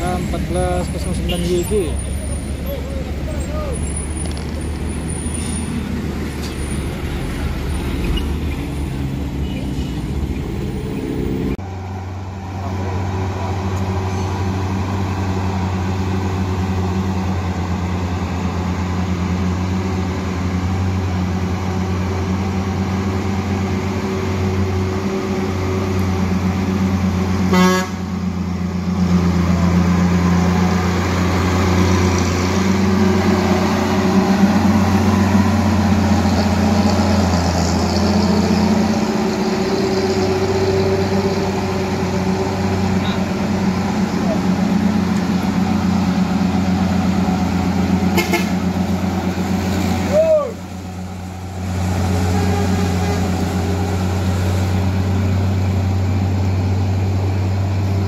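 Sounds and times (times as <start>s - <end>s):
truck diesel engine droning: 0.0s - 58.0s
truck horn toot: 27.4s - 28.1s, 48.0s - 48.9s, 51.9s - 54.0s.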